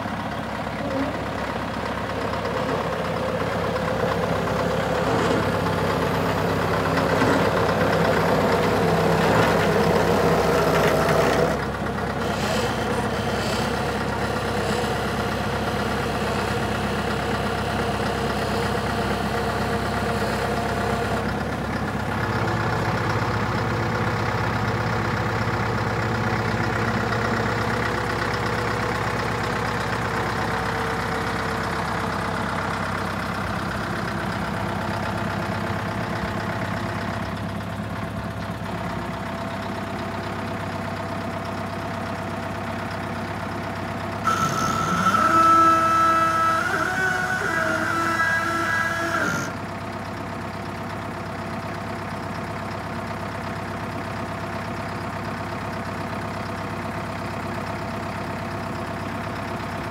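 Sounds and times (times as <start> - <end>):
diesel truck engine idling: 0.0 - 59.9.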